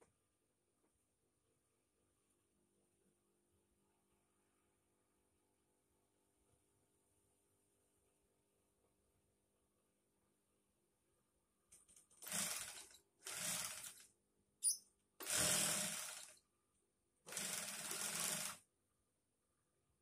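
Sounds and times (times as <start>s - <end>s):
sewing machine running in bursts: 12.2s - 14.0s, 15.2s - 16.4s, 17.3s - 18.6s.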